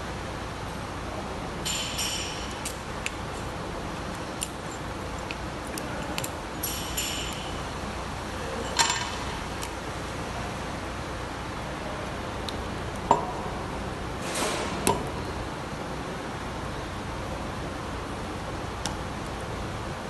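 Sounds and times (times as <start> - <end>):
metal bolts and washers clinking: 1.6 - 7.8, 8.6 - 9.8.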